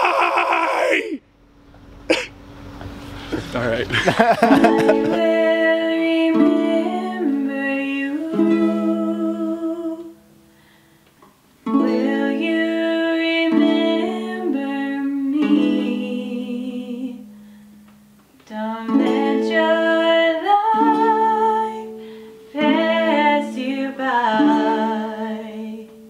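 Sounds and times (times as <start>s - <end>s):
wordless singing: 4.1s - 10.2s, 11.7s - 17.3s, 22.5s - 26.0s
ukulele playing: 4.2s - 10.5s, 11.6s - 26.0s.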